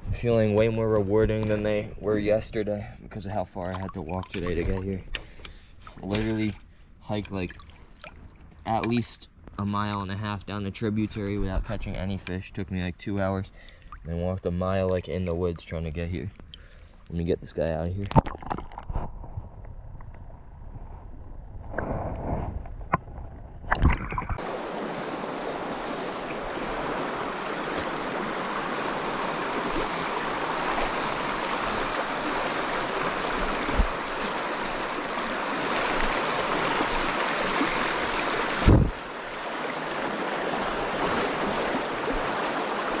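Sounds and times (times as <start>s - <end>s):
river rushing over rocks: 24.4s - 43.0s.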